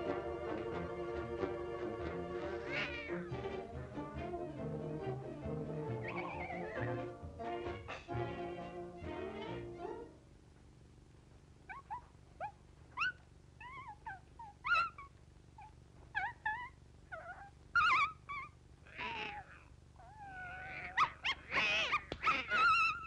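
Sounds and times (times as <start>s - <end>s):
cartoon cat yowling: 2.6s - 3.2s, 18.9s - 23.0s
cartoon puppy whimpers and yips: 5.9s - 7.2s, 11.7s - 23.0s.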